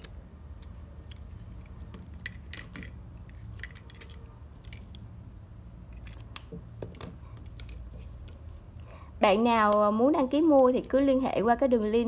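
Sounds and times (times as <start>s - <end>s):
pens and caps clicking: 0.0s - 5.1s, 5.9s - 8.9s.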